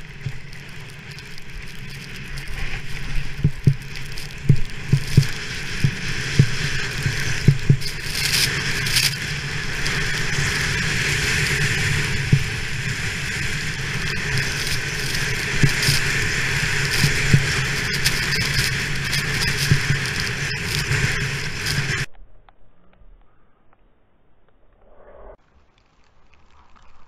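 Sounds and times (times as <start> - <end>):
skis hissing over snow: 0.0 - 22.1
wind buffeting camera: 0.0 - 22.2
low knocks of skis on bumps: 2.5 - 8.7.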